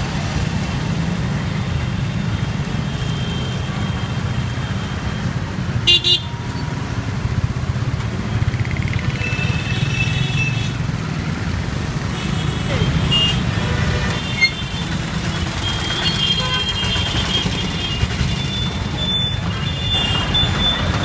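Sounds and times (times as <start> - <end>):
traffic engine rumble: 0.0 - 21.0
vehicle horn honking: 5.9 - 6.4, 16.0 - 18.0.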